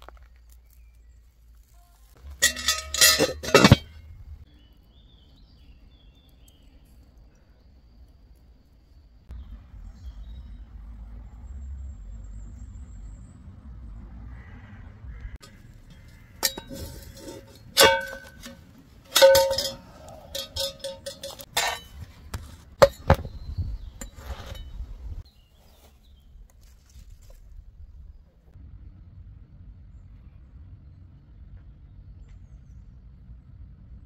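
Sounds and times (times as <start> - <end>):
cookware and utensils clinking: 2.3 - 4.0, 16.4 - 22.0.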